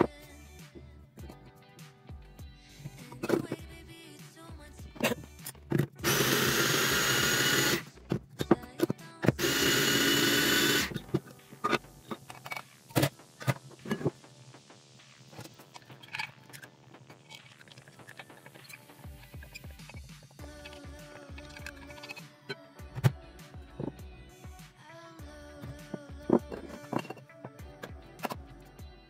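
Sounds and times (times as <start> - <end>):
electric chopper whirring: 6.0 - 7.9, 9.4 - 11.0.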